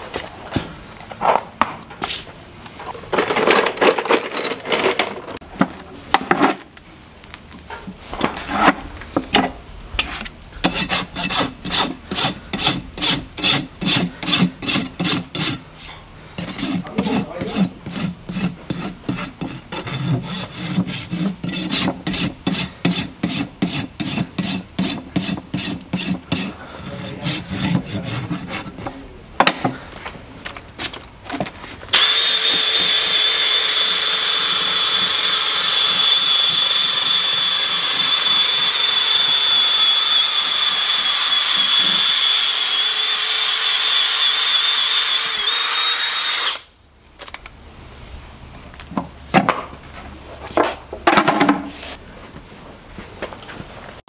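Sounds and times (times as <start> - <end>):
rasp filing a hoof: 10.0 - 29.1, 32.0 - 46.6
power tool whining: 31.9 - 46.7.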